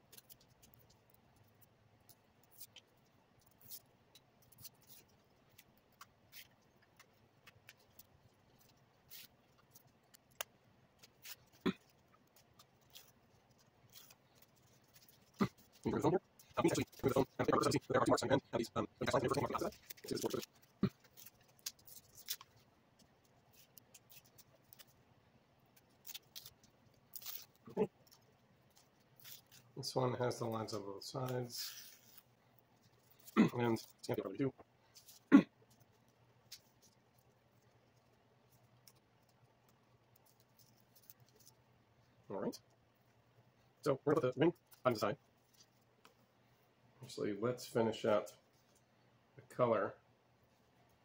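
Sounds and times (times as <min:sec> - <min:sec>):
knife clicking and scratching: 0:00.0 - 0:17.8, 0:19.1 - 0:25.0, 0:25.7 - 0:29.8.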